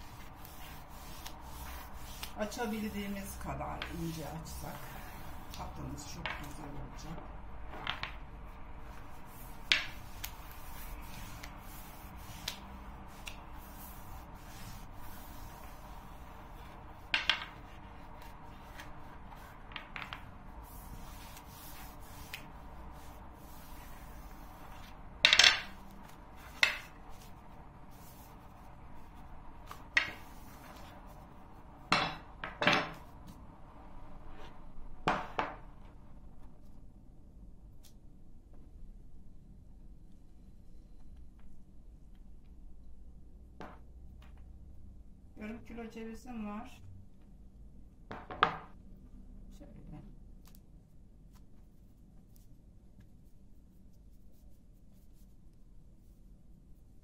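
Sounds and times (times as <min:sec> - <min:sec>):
wooden rolling pin knocking on table: 0:31.9 - 0:33.0.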